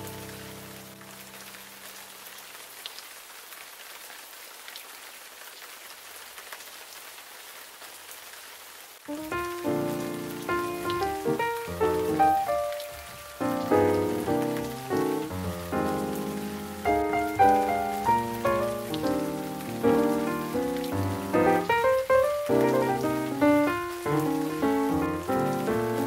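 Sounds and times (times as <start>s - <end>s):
rain patter: 0.0s - 26.0s
background music: 9.1s - 26.0s
faint drips: 9.1s - 26.0s.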